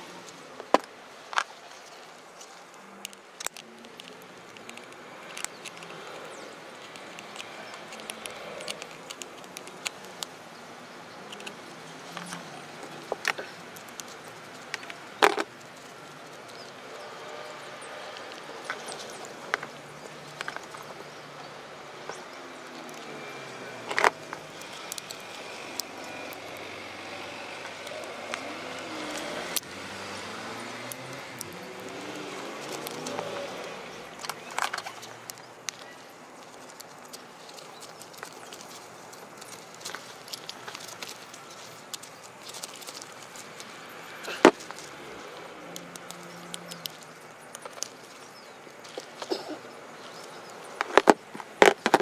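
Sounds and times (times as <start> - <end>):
steady background noise: 0.0 - 52.0
small metal parts clicking: 1.8 - 10.4, 22.1 - 30.3, 30.9 - 33.3, 34.1 - 49.3.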